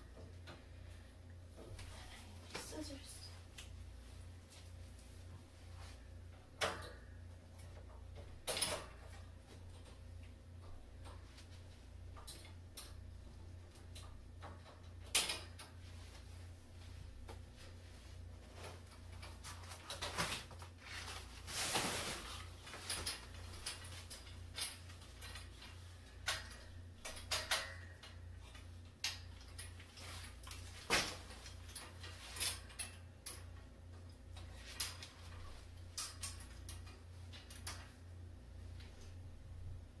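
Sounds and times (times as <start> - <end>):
low steady hum: 0.0 - 40.0
metal wire shelf clicks and clanks: 6.3 - 16.3, 18.5 - 38.1
short rustle: 17.6 - 24.1.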